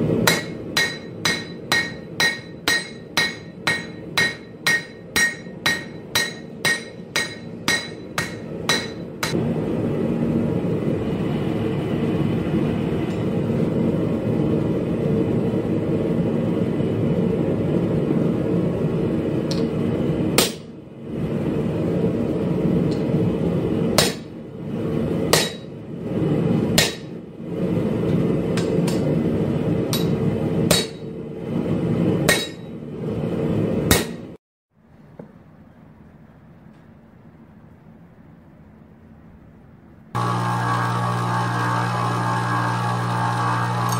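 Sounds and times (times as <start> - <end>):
hammer striking blade on anvil: 0.2 - 9.4, 20.4 - 20.7, 24.0 - 24.3, 25.3 - 25.7, 26.8 - 27.2, 29.9 - 31.1, 32.3 - 32.7, 33.9 - 34.3.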